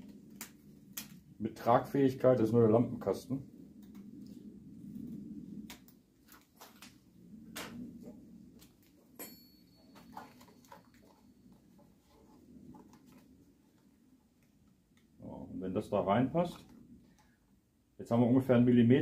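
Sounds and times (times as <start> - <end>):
low steady hum: 0.0 - 19.0
metallic clink: 9.2 - 10.9.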